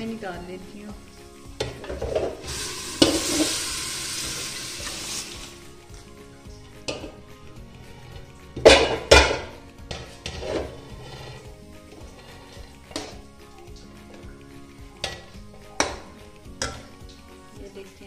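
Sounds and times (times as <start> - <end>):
liquid hissing into hot pan: 0.6 - 5.8
metal pot clanking against pan: 1.6 - 3.6, 6.8 - 7.2, 8.6 - 10.8, 15.0 - 17.0.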